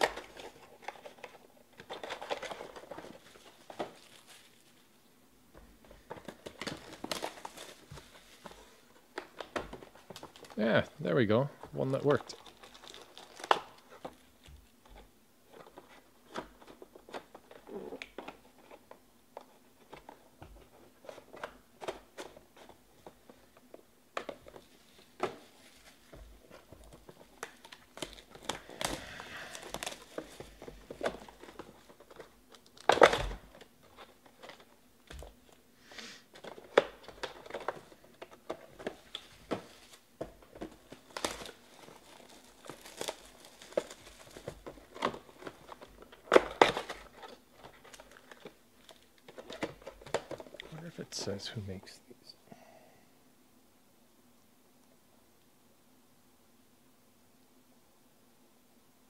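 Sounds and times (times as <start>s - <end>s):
plastic wrapping crinkling and tearing: 0.0s - 4.9s, 5.9s - 10.7s, 11.6s - 18.9s, 24.2s - 35.6s, 36.3s - 51.0s.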